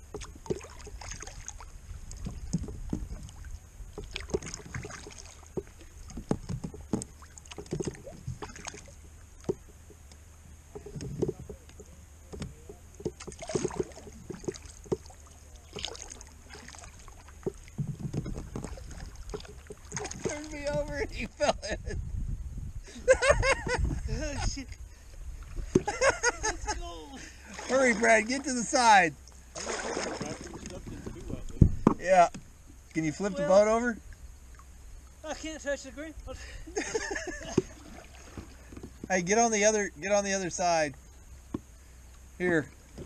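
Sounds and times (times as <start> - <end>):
paddle splashing in water: 0.0 - 21.4, 25.2 - 35.3, 37.0 - 39.7
low steady rumble: 0.0 - 43.0.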